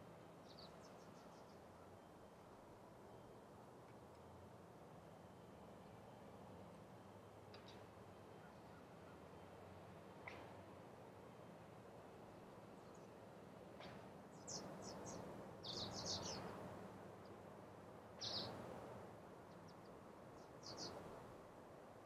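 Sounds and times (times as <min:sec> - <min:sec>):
small bird chirping: 0:00.4 - 0:01.6, 0:14.4 - 0:16.5, 0:18.2 - 0:18.5, 0:20.6 - 0:20.9.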